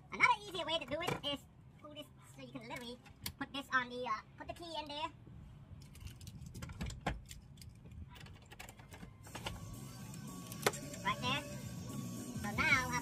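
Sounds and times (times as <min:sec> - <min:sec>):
car keys jangling: 0:05.8 - 0:09.7
faint hum with high tone: 0:09.1 - 0:13.0.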